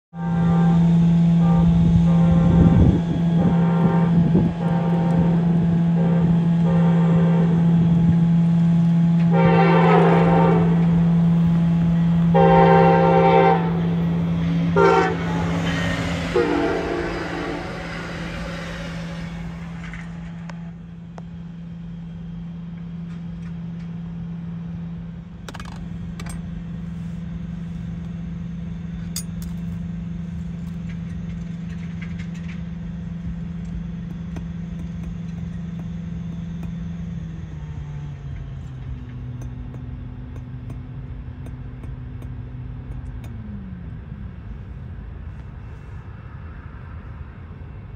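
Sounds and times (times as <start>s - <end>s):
passenger train horn blasts: 0.1s - 21.2s
steady low hum: 0.2s - 47.9s.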